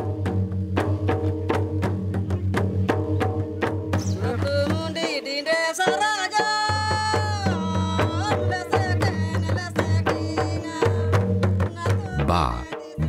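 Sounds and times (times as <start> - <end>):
hand drums beating: 0.0 - 13.0
person singing long notes: 12.0 - 13.0.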